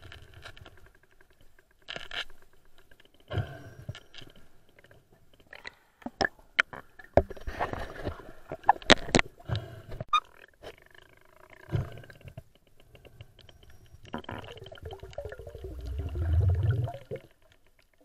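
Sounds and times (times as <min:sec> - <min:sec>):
muffled underwater scraping: 0:14.2 - 0:17.2.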